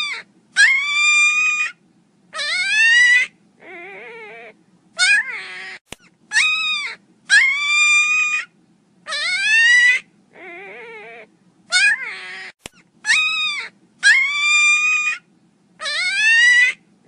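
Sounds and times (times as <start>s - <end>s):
puppy whining yelps: 0.0s - 16.8s.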